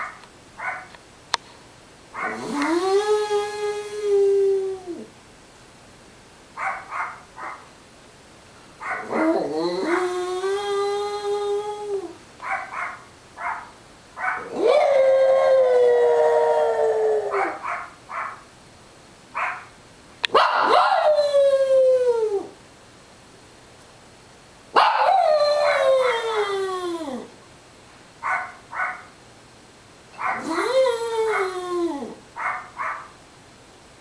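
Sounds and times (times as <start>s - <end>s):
dog yipping: 0.0s - 0.9s, 6.6s - 7.6s, 12.4s - 14.6s, 17.3s - 18.4s, 19.4s - 19.7s, 28.2s - 29.1s, 30.2s - 30.7s, 32.4s - 33.2s
dog howling: 2.2s - 5.1s, 8.8s - 18.4s, 20.4s - 22.6s, 24.8s - 27.3s, 30.2s - 33.1s.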